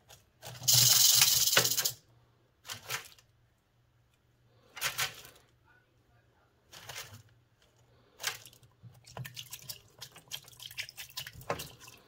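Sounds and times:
rattlesnake tail rattle buzzing: 0:00.7 - 0:02.0.

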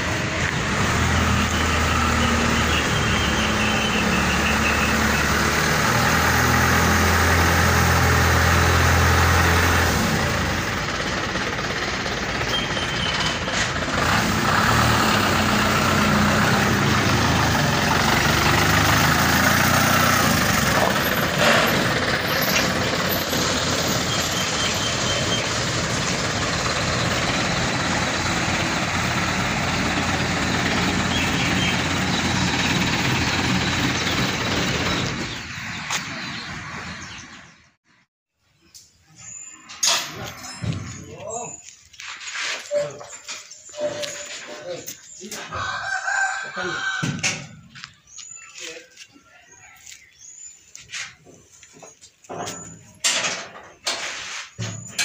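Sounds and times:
diesel truck engine rumbling: 0:00.0 - 0:38.1.

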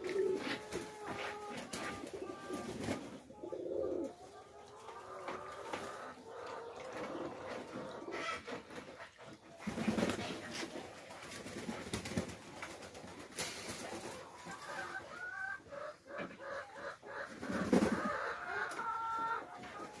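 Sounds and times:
pigeons cooing: 0:00.0 - 0:08.5, 0:14.0 - 0:20.0.

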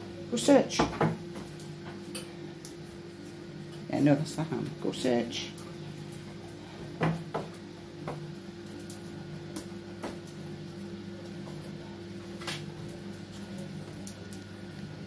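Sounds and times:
steady low hum: 0:00.0 - 0:15.0
dog claws clicking on tiled floor: 0:12.4 - 0:14.8.

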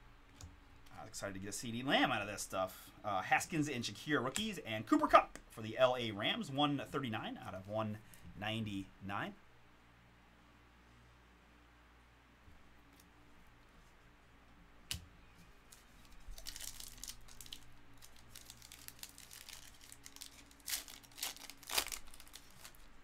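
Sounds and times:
foil wrapper crinkling: 0:15.6 - 0:23.0.

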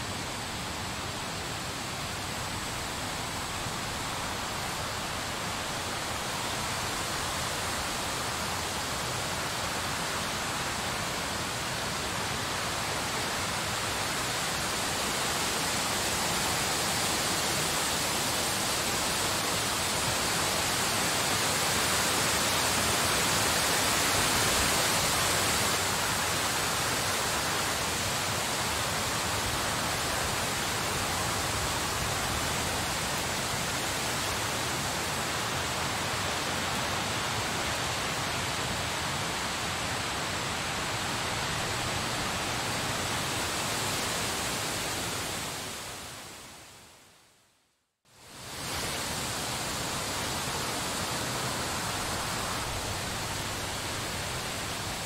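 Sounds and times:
snowstorm wind hissing: 0:00.0 - 0:46.9, 0:48.1 - 0:55.0.

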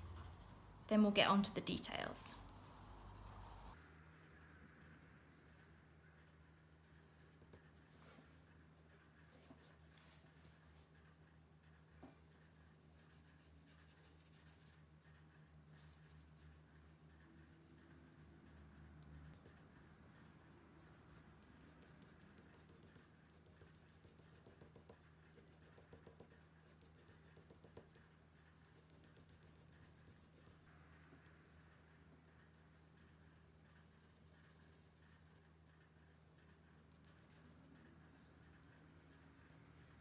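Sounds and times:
pencil scratching on paper: 0:00.0 - 0:04.4, 0:06.4 - 0:08.0, 0:12.4 - 0:14.8, 0:15.8 - 0:30.6, 0:31.5 - 0:35.6, 0:36.4 - 0:40.0
low steady hum: 0:00.0 - 0:40.0.

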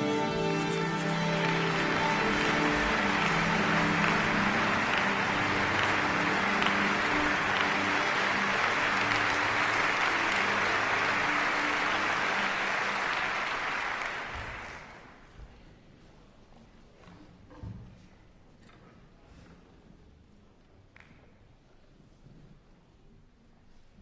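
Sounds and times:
held musical notes: 0:00.0 - 0:13.6
audience applauding: 0:00.4 - 0:15.2.

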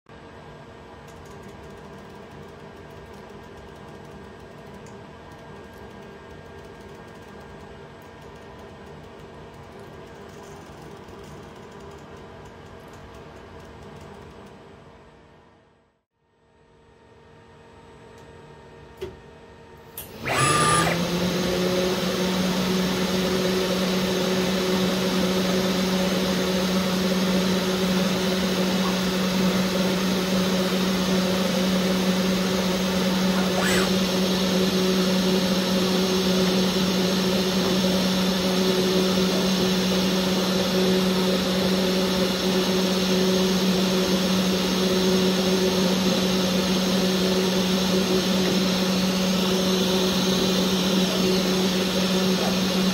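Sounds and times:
engraving spindle humming: 0:20.0 - 0:52.9.

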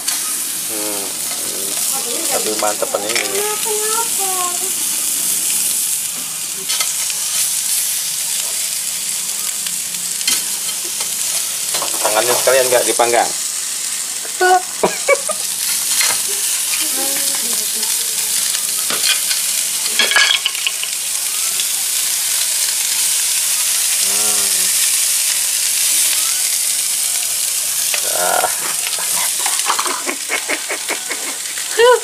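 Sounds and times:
fish sizzling in a pan: 0:00.0 - 0:32.0
sharp clicks in the pan: 0:18.5 - 0:21.0.

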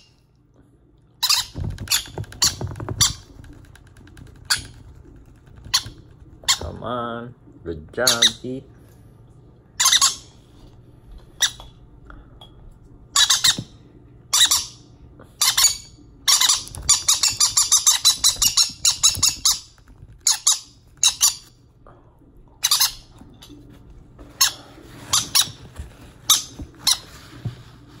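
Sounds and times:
parrot chicks begging squawks: 0:09.8 - 0:10.4, 0:13.1 - 0:13.7, 0:14.3 - 0:21.6, 0:22.6 - 0:23.1.

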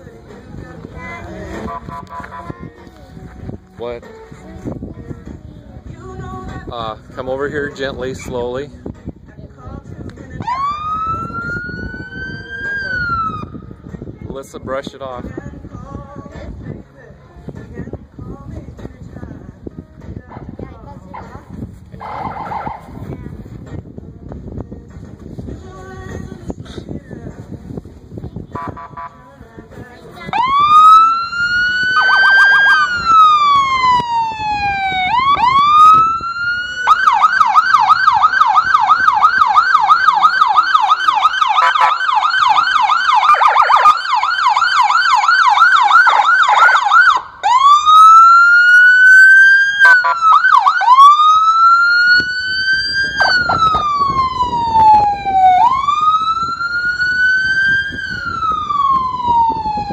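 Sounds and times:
police siren wailing and yelping: 0:10.4 - 0:13.5, 0:22.0 - 0:22.8, 0:30.3 - 0:59.9.

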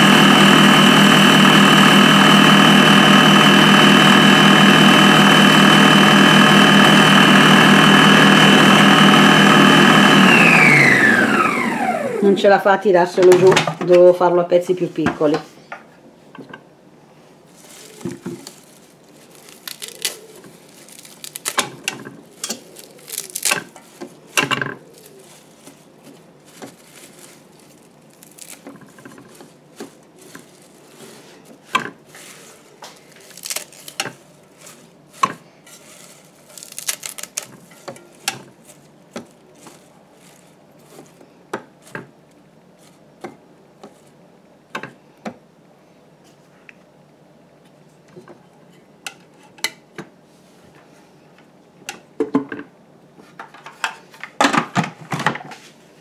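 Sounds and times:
parsley rustling: 0:17.4 - 0:43.2, 0:43.8 - 0:44.2.

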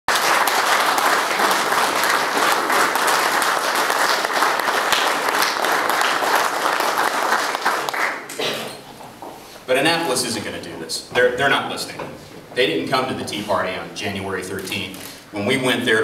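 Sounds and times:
audience clapping: 0:00.1 - 0:08.4.

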